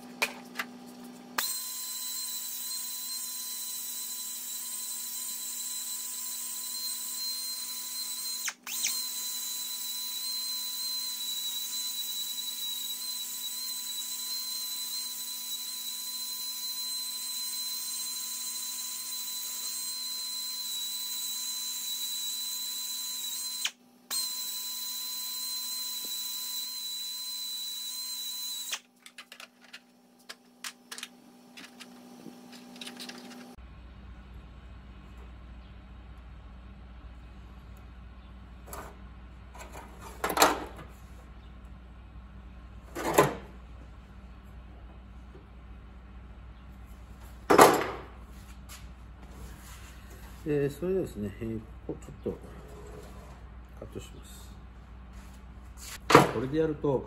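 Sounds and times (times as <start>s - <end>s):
power tool whining: 1.4s - 28.8s.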